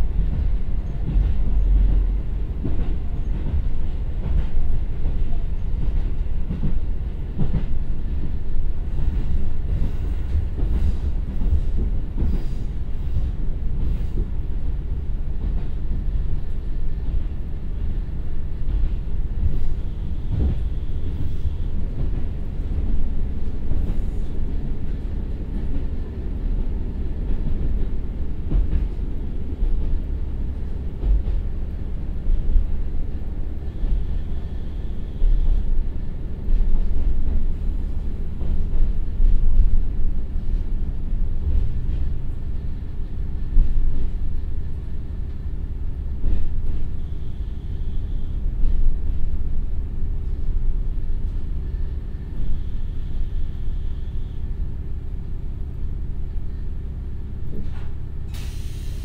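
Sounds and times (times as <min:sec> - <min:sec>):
train wheels rumbling: 0:00.0 - 0:59.0.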